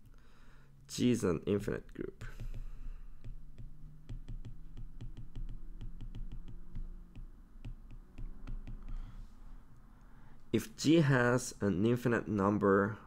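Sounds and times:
steady low hum: 0.0 - 13.0
stylus tapping on glass screen: 2.2 - 9.2.

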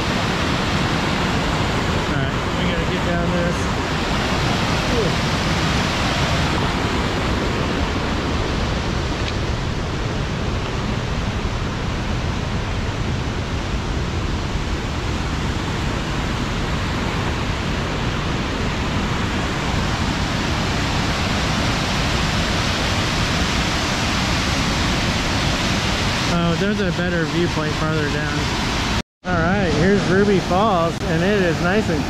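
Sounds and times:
waterfall roaring: 0.0 - 32.0.

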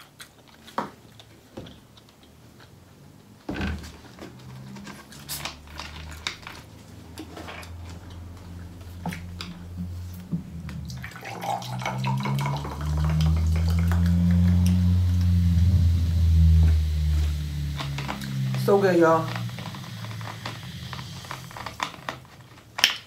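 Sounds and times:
wet chewing and smacking: 0.0 - 3.0
swallowing rumble: 7.7 - 22.3
drinking from a bottle: 9.1 - 18.6.

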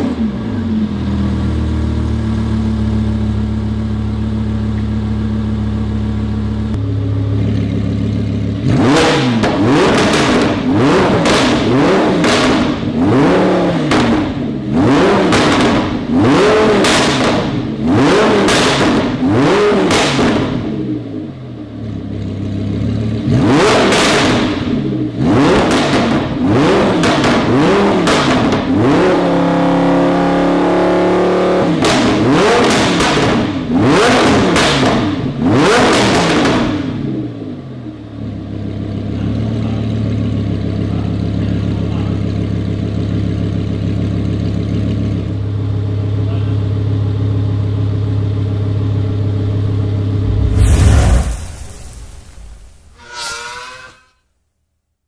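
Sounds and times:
sports car engine revving: 0.0 - 51.5
car engine idling: 0.3 - 9.0, 37.3 - 50.5.

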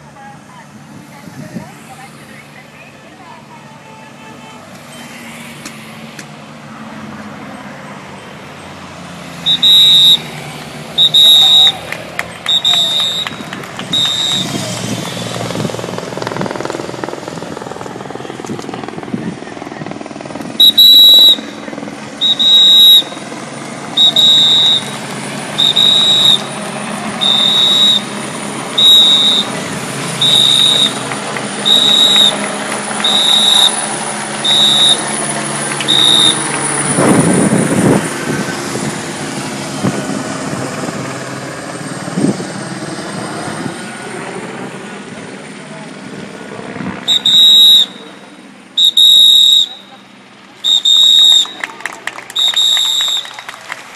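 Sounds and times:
rumble of vehicles: 0.0 - 53.9
vehicle passing close: 4.9 - 53.9
shrill whistle blasts: 9.4 - 10.3, 11.0 - 14.7, 20.6 - 21.6, 22.2 - 23.2, 24.0 - 25.0, 25.6 - 26.6, 27.2 - 28.2, 28.8 - 29.6, 30.2 - 31.0, 31.6 - 33.8, 34.4 - 35.2, 35.8 - 36.5, 47.1 - 48.2, 48.8 - 50.0, 50.6 - 51.7, 52.3 - 53.6.

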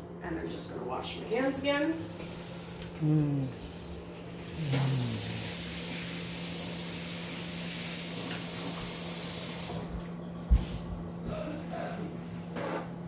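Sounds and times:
tap water running: 4.4 - 10.2.

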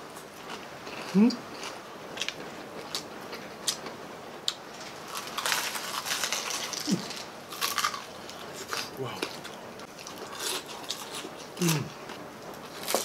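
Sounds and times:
crunching bites into crispy food: 4.8 - 9.4, 12.7 - 13.0.

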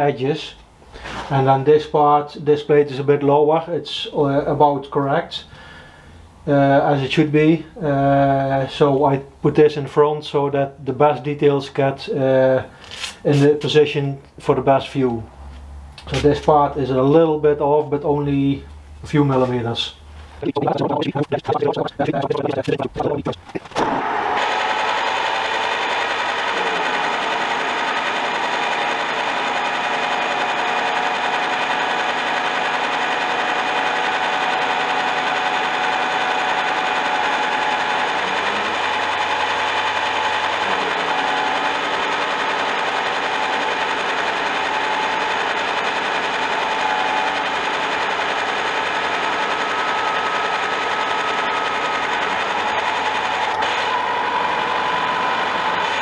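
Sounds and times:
fast chattering rattle: 20.4 - 23.8
milling machine gear whine: 48.6 - 56.0.

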